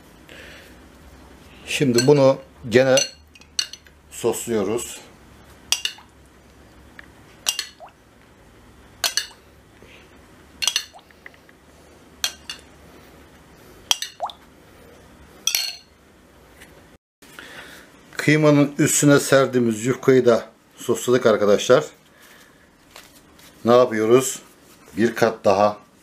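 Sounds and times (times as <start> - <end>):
metal spoon clinking on glass bowl: 3.0 - 3.9, 5.7 - 6.1, 7.5 - 7.8, 9.0 - 9.4, 10.6 - 11.0, 13.9 - 14.3, 15.5 - 15.9.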